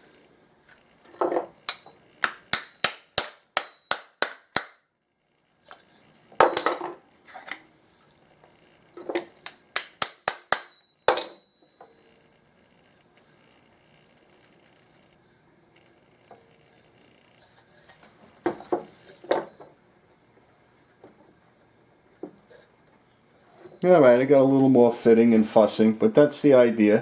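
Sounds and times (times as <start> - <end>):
hammer tapping with metallic ring: 1.7 - 5.9, 9.4 - 12.4.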